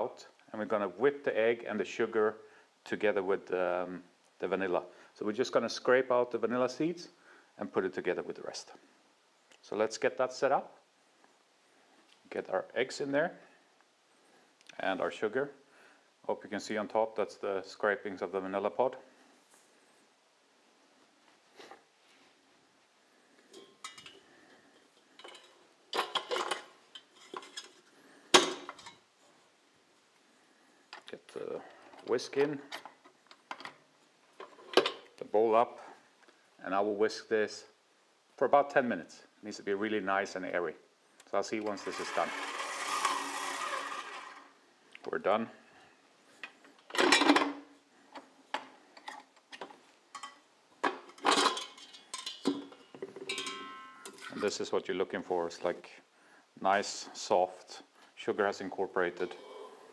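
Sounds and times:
metal bowl and whisk clattering: 53.2s - 54.4s.

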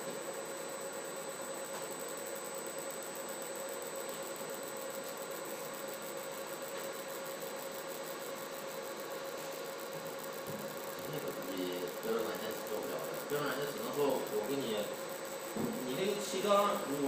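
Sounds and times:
machine hum and hiss: 0.0s - 17.0s.

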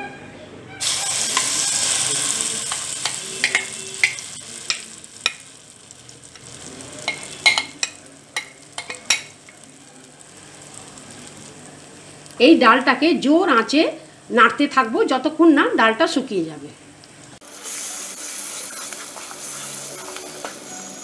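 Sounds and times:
paste sizzling in hot oil: 0.8s - 12.4s, 17.3s - 21.0s
frying hiss: 0.8s - 21.0s.

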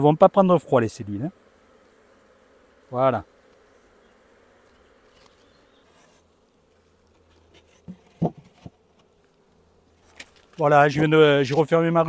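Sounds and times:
bees buzzing: 0.0s - 12.0s
hive lid knocks: 7.4s - 9.1s.

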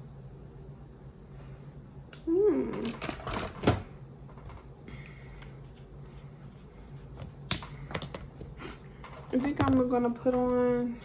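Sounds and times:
makeup items clattering on table: 9.0s - 10.7s.

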